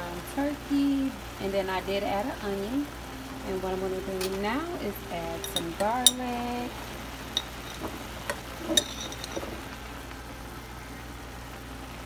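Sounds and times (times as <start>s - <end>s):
steady low hum: 0.0s - 12.0s
metal spoon clinking on pot: 5.4s - 6.3s, 7.3s - 9.5s.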